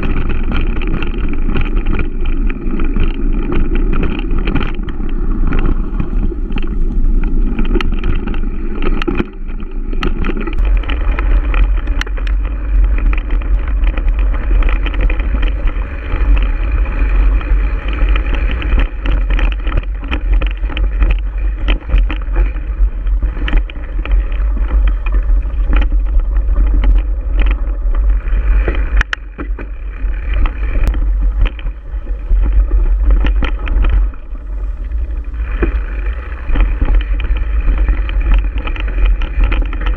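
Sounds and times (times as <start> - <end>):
bike clicks and rattles: 0.0 - 39.9
tyre noise on dirt: 0.0 - 39.9
wind rumble on microphone: 0.0 - 39.9.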